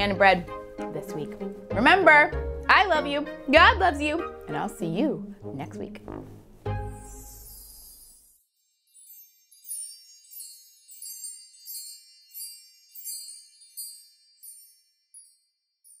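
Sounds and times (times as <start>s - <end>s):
high bell-like chime tones: 6.8s - 16.0s.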